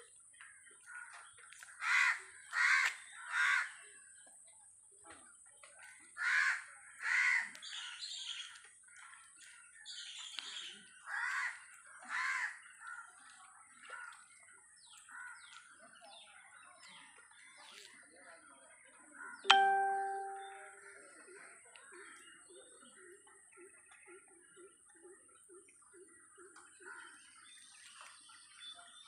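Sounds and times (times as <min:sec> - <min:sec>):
crows cawing: 0:01.8 - 0:03.7, 0:06.2 - 0:07.5, 0:11.1 - 0:12.6.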